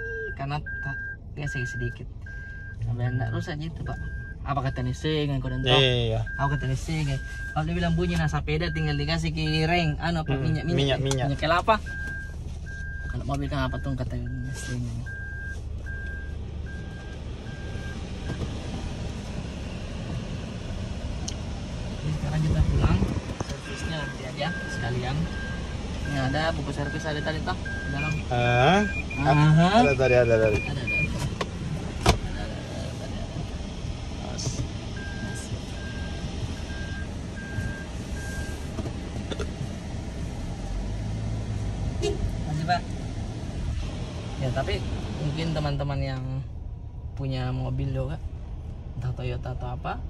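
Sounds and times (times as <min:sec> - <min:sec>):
reverse warning beeps: 0:00.0 - 0:07.9, 0:08.6 - 0:11.0, 0:11.8 - 0:18.5, 0:23.6 - 0:31.2, 0:35.0 - 0:38.6
low hum of car: 0:00.0 - 0:50.0
reverse beeper short beeps: 0:11.9 - 0:18.0, 0:23.6 - 0:31.2.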